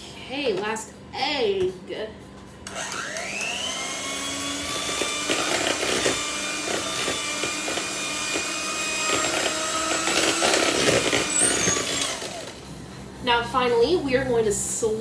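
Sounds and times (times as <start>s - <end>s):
electric hand mixer running: 2.7s - 12.7s.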